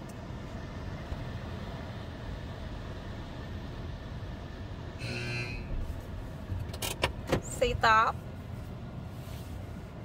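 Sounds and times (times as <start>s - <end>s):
car cabin noise: 0.0s - 10.0s.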